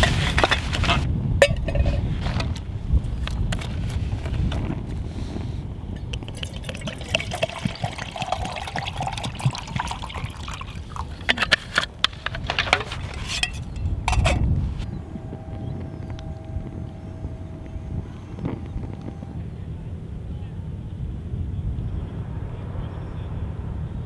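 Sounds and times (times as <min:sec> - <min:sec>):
water pouring into metal mug: 0:06.0 - 0:11.5.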